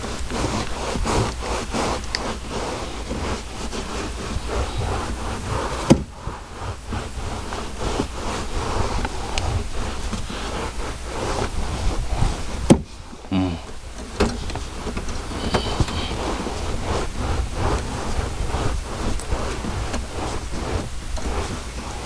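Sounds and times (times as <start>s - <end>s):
towel scrubbing carpet: 0.0s - 22.0s
sharp knocks: 5.9s - 6.1s, 12.6s - 12.9s.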